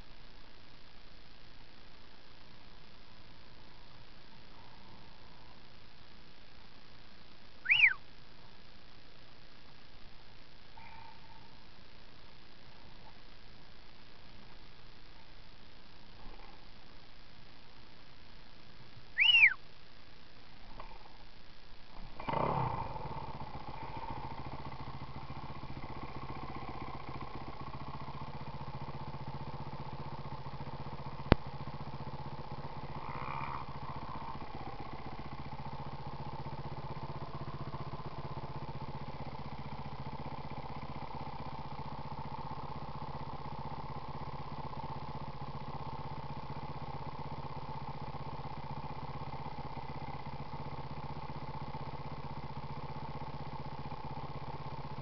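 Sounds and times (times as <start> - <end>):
dirt bike engine idling: 0.0 - 6.8, 7.4 - 9.4, 19.1 - 19.6, 21.9 - 55.0.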